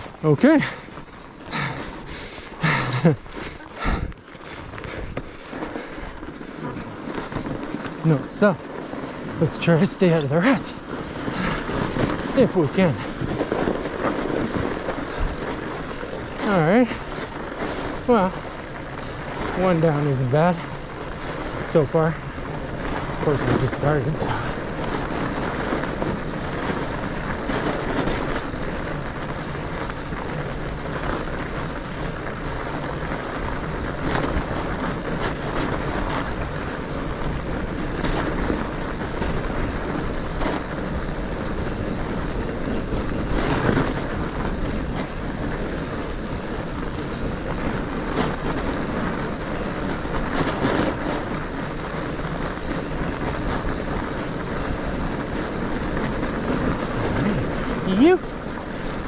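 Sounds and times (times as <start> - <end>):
bike knocks and rattles: 0.0 - 59.0
bike tyres rolling over snow: 0.0 - 59.0
wind on microphone: 0.0 - 59.0.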